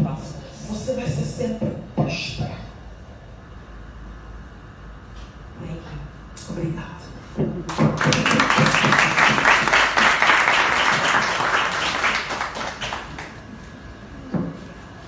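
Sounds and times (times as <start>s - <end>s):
small audience clapping: 7.7s - 13.6s.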